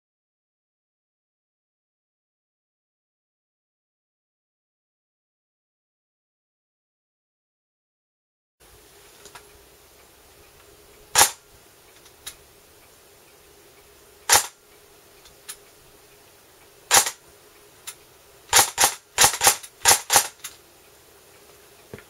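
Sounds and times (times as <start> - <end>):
airsoft gun shots: 11.2 - 11.4, 14.3 - 14.6, 16.9 - 17.2, 18.5 - 20.5.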